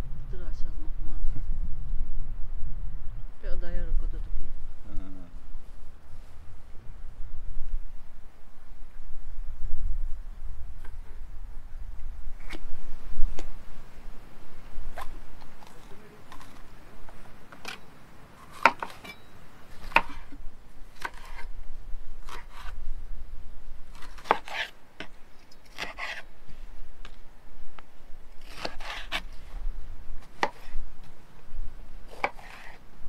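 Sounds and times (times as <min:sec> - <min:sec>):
knife chopping on wooden board: 0:28.5 - 0:29.2, 0:30.3 - 0:30.8, 0:32.1 - 0:32.8.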